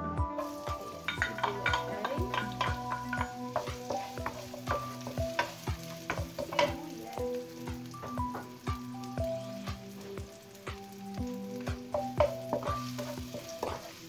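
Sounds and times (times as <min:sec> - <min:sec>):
background music with beat: 0:00.0 - 0:14.0
onion sizzling in oil: 0:00.2 - 0:14.0
wooden spatula scraping pan: 0:00.4 - 0:07.1, 0:12.2 - 0:14.0.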